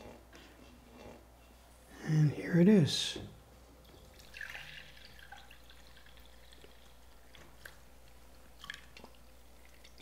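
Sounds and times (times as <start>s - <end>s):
liquid trickling and dripping: 3.8s - 10.0s.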